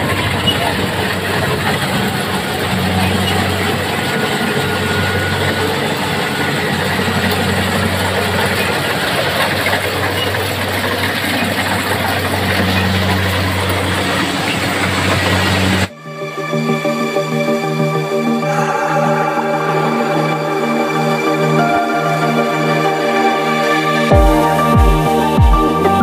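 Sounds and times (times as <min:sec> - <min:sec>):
combine harvester running: 0:00.0 - 0:15.9.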